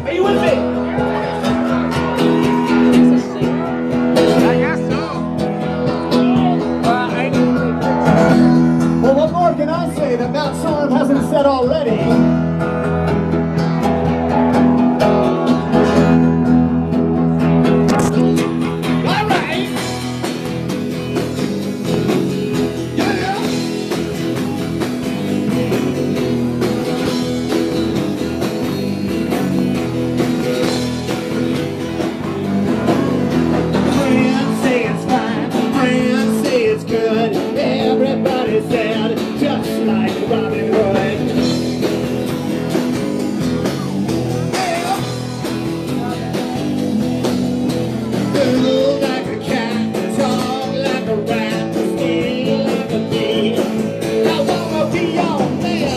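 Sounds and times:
drums: 0.0s - 55.9s
electric guitar: 0.0s - 55.9s
person singing: 22.9s - 24.6s, 32.4s - 41.7s, 43.7s - 46.6s, 47.8s - 55.9s.

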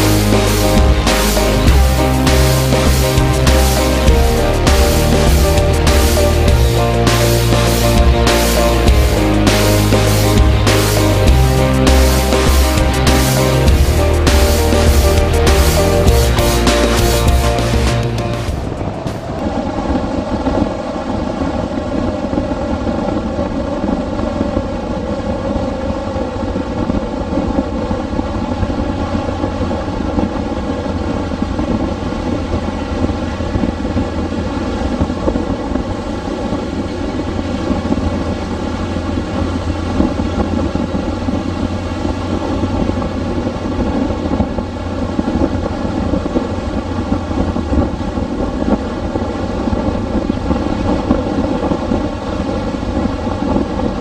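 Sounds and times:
wind rush on microphone: 18.5s - 54.0s.

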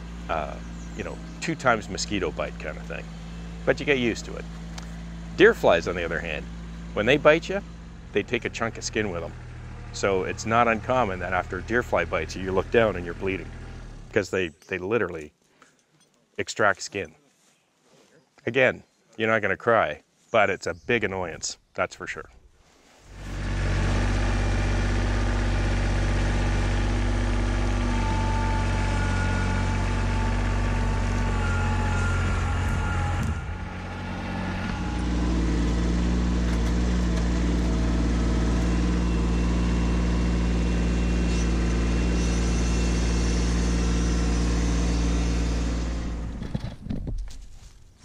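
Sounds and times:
tractor diesel engine running: 0.0s - 14.5s, 23.0s - 46.9s
thin whine: 26.3s - 46.5s.

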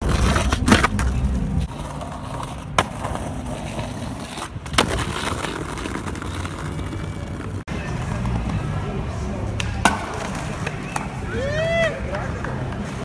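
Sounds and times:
skateboard wheels rolling on stone: 0.0s - 9.1s
skateboard clacking on ground: 0.0s - 11.2s.

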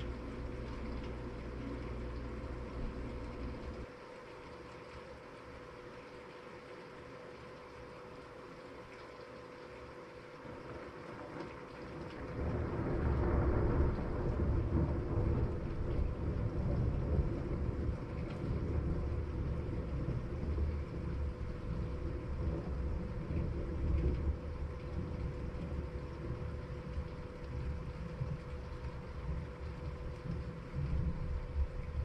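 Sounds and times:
rain hiss: 0.0s - 32.0s
thunder rumbling: 12.1s - 32.0s.

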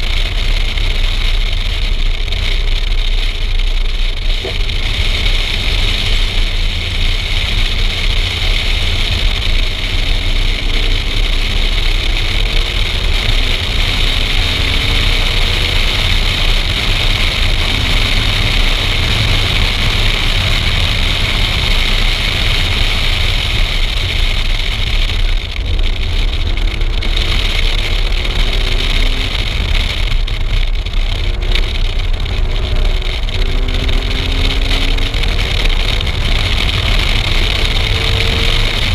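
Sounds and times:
faint car engine accelerating: 0.0s - 38.9s
wind and road noise: 0.0s - 38.9s.

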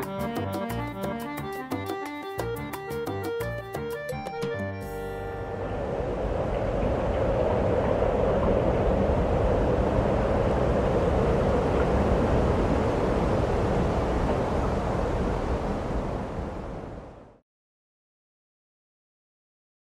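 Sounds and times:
outdoor rumble and hiss: 5.4s - 17.4s.

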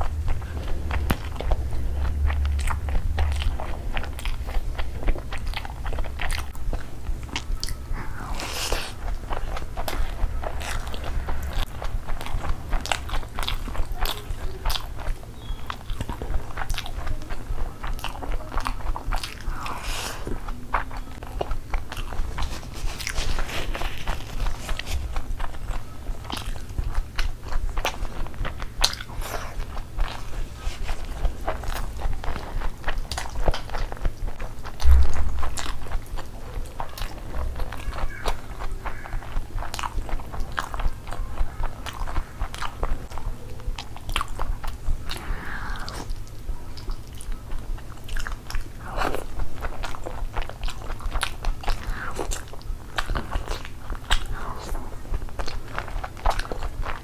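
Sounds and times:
wet chewing and smacking: 0.0s - 57.0s
dull thump: 34.8s - 35.4s.

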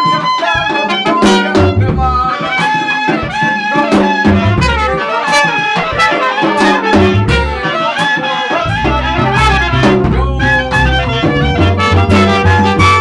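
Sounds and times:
clarinet melody: 0.0s - 13.0s
hand drums: 0.0s - 13.0s
trumpet: 0.0s - 13.0s
low bass line: 1.6s - 2.2s, 7.1s - 7.6s, 8.7s - 13.0s.

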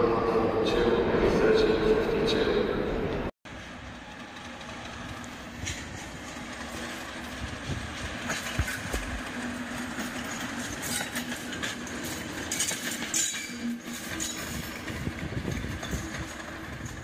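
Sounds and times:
diesel locomotive engine drone: 0.0s - 17.0s
train wheels clicking over rails: 3.5s - 17.0s.

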